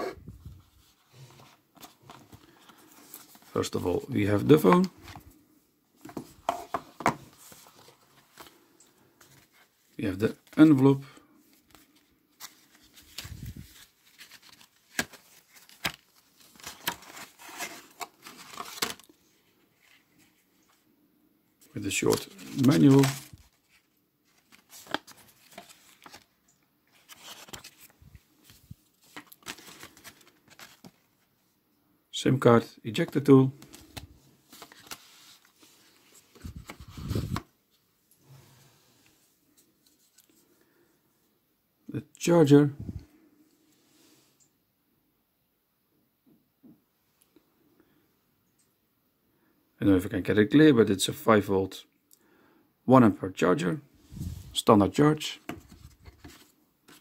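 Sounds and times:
paper rustling and crinkling: 0:00.0 - 0:05.4, 0:06.0 - 0:20.8, 0:21.6 - 0:31.3, 0:33.0 - 0:37.5, 0:55.3 - 0:57.0
faint handling: 0:21.6 - 0:31.3.

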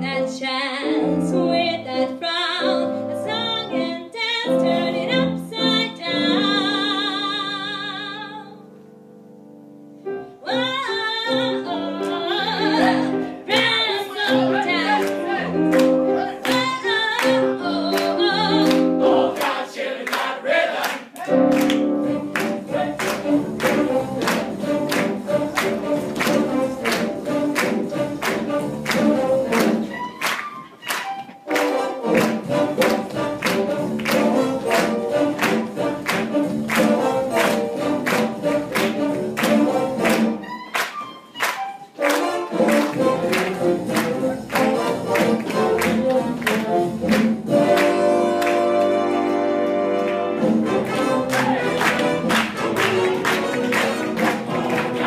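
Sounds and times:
upbeat music with group singing: 0:12.7 - 0:30.0, 0:31.6 - 0:40.4, 0:42.2 - 0:48.5, 0:50.6 - 0:55.0.

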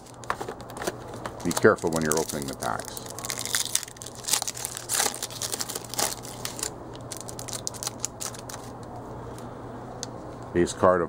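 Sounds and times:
cards rustling: 0:00.0 - 0:08.8
foil pack crinkling: 0:00.0 - 0:08.8.

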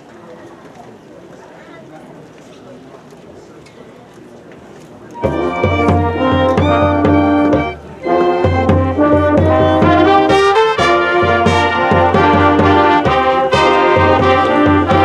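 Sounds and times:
marching band brass chords: 0:05.2 - 0:15.0.

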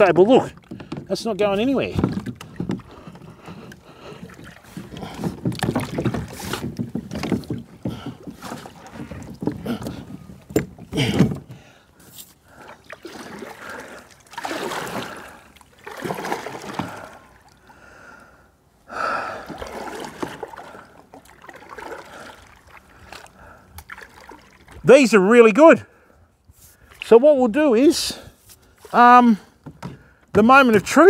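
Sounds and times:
paddle splashing in water: 0:00.0 - 0:17.8, 0:19.0 - 0:24.9.

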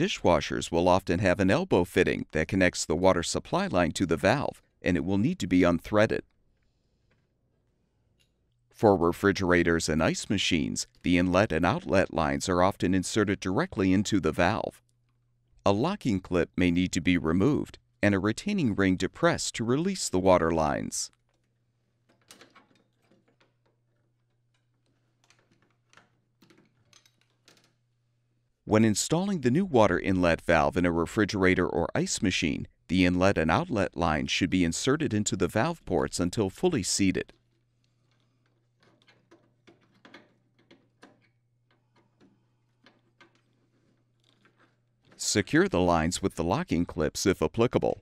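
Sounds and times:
plastic clicks and knocks: 0:22.1 - 0:27.8, 0:37.3 - 0:45.2.

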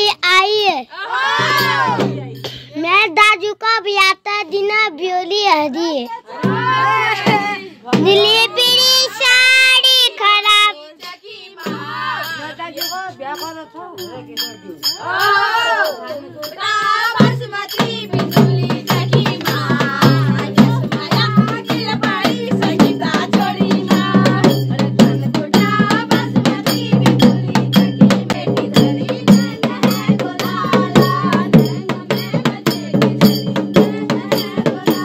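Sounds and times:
voices singing together: 0:00.9 - 0:02.6, 0:05.6 - 0:35.0
fast drum beat: 0:01.4 - 0:02.5, 0:06.4 - 0:35.0
jingling rattle: 0:12.2 - 0:25.6.

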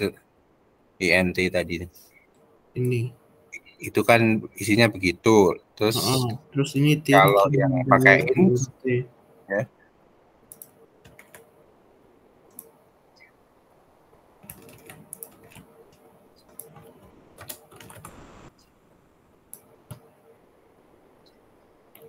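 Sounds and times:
computer keyboard typing: 0:10.5 - 0:11.5, 0:14.4 - 0:18.2.

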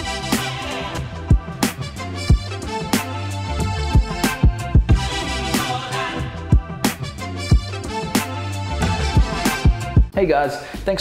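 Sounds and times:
held bass notes: 0:00.0 - 0:10.2
deep kick drum: 0:03.6 - 0:05.1, 0:07.5 - 0:07.8, 0:08.8 - 0:10.2.

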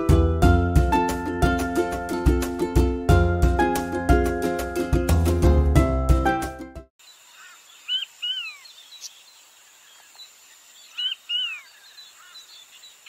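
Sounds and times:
quail calling: 0:07.4 - 0:09.2, 0:10.9 - 0:12.5.

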